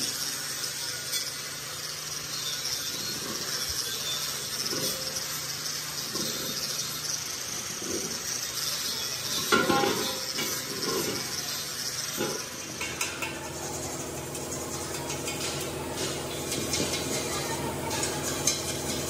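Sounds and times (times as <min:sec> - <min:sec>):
metal cylinders knocking and clanking: 0:09.4 - 0:19.0.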